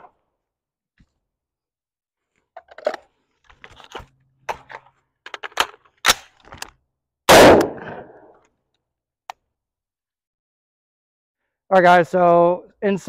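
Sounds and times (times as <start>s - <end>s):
rifle shot with echo: 7.3s - 8.3s.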